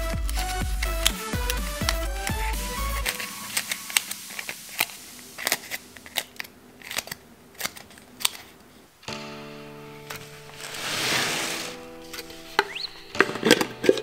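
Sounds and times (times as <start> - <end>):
background music: 0.0 - 5.8, 9.0 - 14.0
fingers clicking cardboard strips: 0.0 - 8.6.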